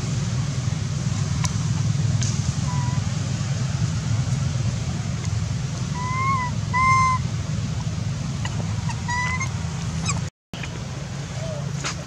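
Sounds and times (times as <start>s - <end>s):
macaque coo calls: 2.6s - 3.0s, 6.0s - 7.2s, 8.4s - 10.2s.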